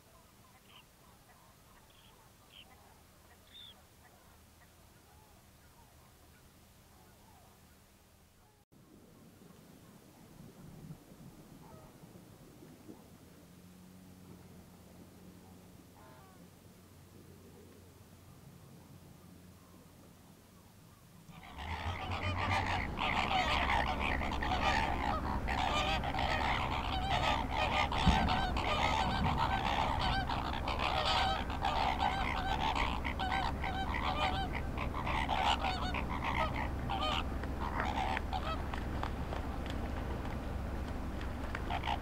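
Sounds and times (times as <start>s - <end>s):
flamingos honking: 21.3s - 42.0s
steady low rumble: 21.3s - 42.0s.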